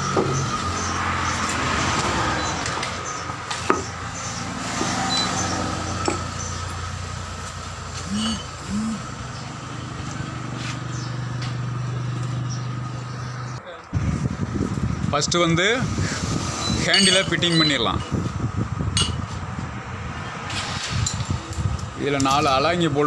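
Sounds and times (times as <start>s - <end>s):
low engine-like hum: 2.1s - 15.0s.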